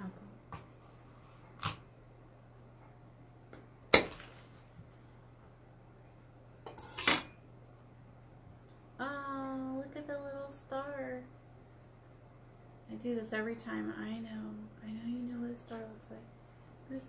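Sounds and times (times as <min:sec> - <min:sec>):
low steady hum: 0:00.0 - 0:17.0
knife cutting apple: 0:00.6 - 0:01.9.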